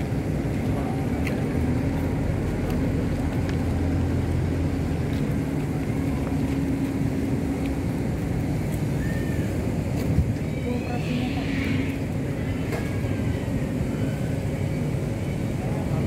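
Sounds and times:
engine humming: 0.0s - 16.0s.

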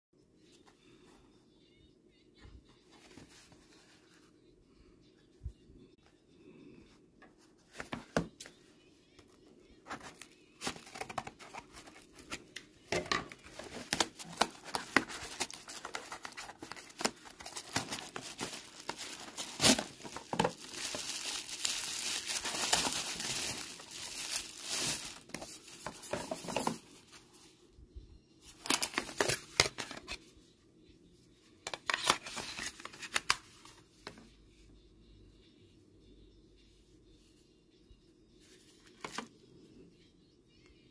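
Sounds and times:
cardboard packaging rustling and tearing: 9.9s - 12.4s, 13.0s - 26.8s, 28.6s - 30.1s
plastic case handling: 9.9s - 12.4s, 13.0s - 26.8s.

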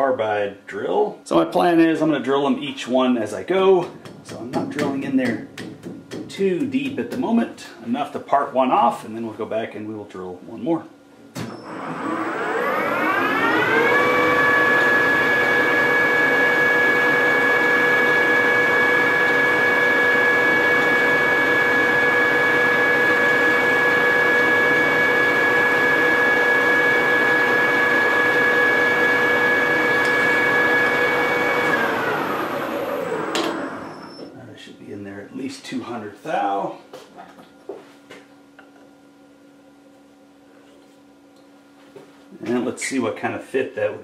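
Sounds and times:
lathe motor and gear whine: 11.5s - 34.3s.

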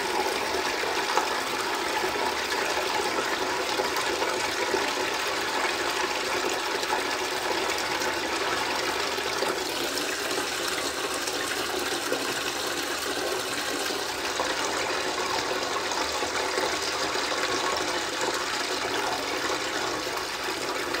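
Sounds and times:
water rushing from a floor drain: 0.0s - 21.0s.

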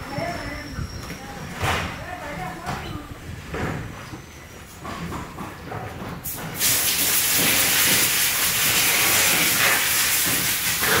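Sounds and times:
loud steady hiss: 6.3s - 11.0s.

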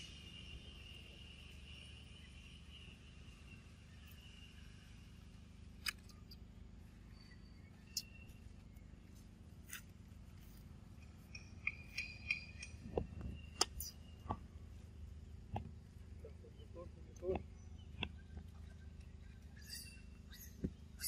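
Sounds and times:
sharp clicks and ticks: 11.0s - 14.4s.

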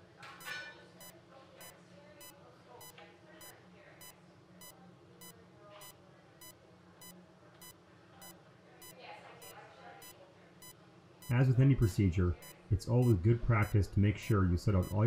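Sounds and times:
patient monitor beeping: 0.0s - 15.0s.

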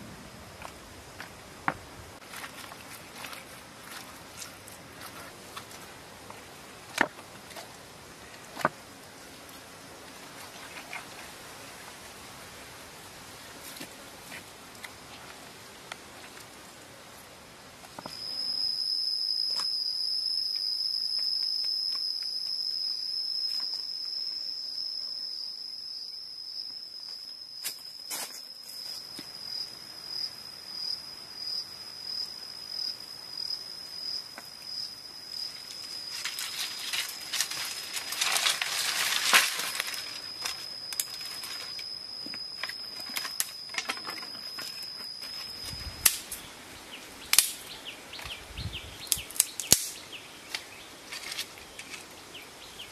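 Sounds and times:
high-pitched insect drone: 18.0s - 46.4s.

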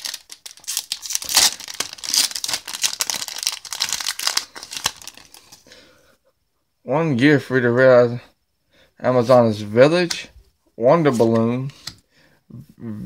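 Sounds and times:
foil wrapper crinkling: 0.0s - 5.6s.

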